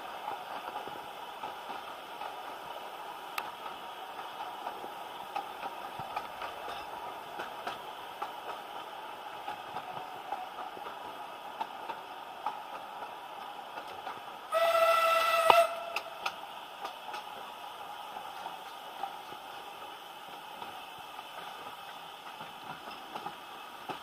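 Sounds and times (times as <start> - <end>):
hiss of steam: 0.0 - 24.0
train carriage running rumble: 0.0 - 24.0
steam locomotive whistle: 14.5 - 16.4.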